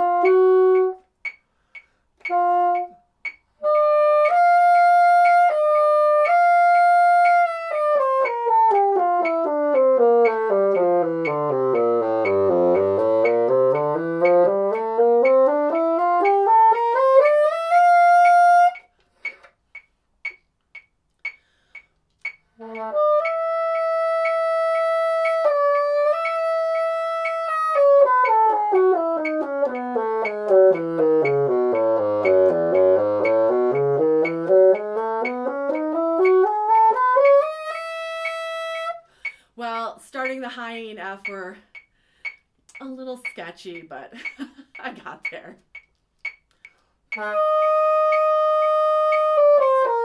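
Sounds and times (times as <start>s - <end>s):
bassoon playing scales: 0.0s - 1.4s, 2.2s - 19.4s, 22.5s - 39.1s, 47.1s - 50.0s
metronome ticking: 0.0s - 50.0s.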